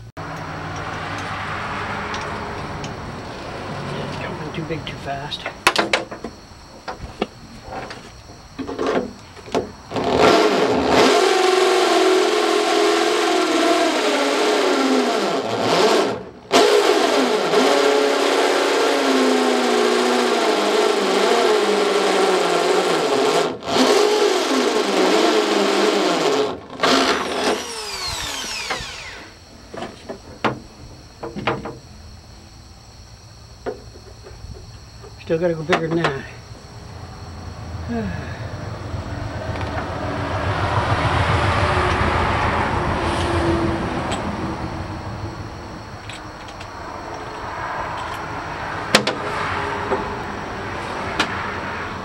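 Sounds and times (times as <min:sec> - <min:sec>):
drill spinning down whine: 0:06.8 - 0:30.6, 0:39.5 - 0:51.8
electric drill boring through steel: 0:09.5 - 0:29.4.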